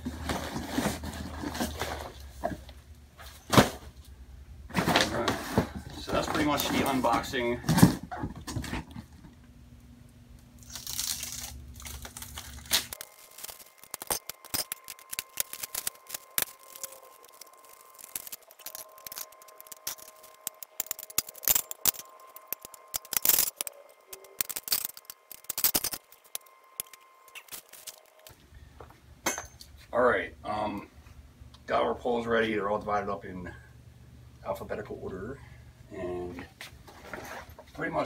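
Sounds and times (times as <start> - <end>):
plastic bag crinkling: 10.6 - 28.3
plastic connectors clicking and clacking: 11.9 - 28.3.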